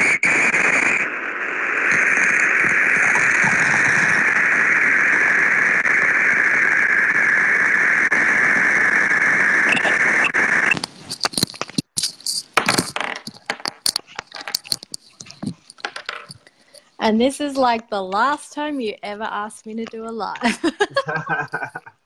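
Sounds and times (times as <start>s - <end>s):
loud static-like hiss: 0.0s - 22.0s
irregular clicks and crackles: 10.5s - 17.0s.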